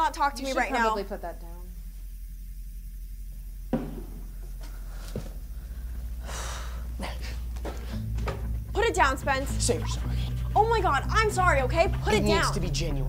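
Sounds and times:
low steady hum: 0.0 - 13.0
soft knock: 3.7 - 4.2.

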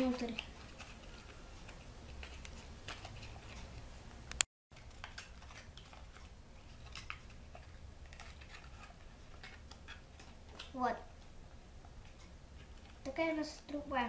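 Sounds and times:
stiff paper folding crinkles: 0.0 - 3.8, 4.7 - 11.2.

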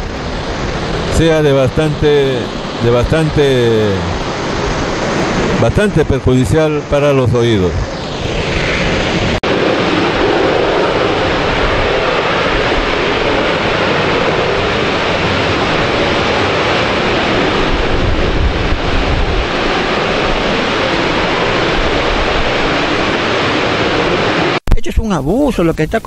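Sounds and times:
factory rushing noise: 0.0 - 12.1.

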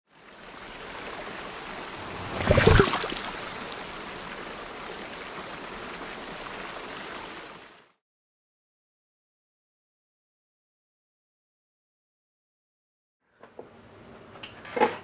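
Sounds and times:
stream water flowing: 0.1 - 8.0
brief burst of sound: 2.0 - 3.6.

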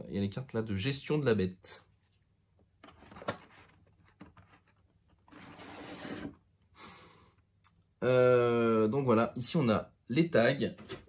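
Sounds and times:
packaging rustling: 2.8 - 6.4.

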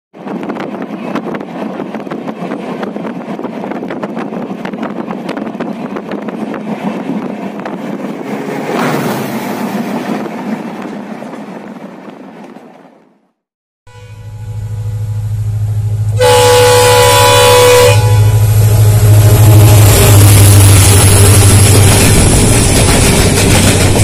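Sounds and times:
train rushing past: 0.2 - 13.0, 14.5 - 24.0
train wheels clattering on rails: 19.9 - 24.0.

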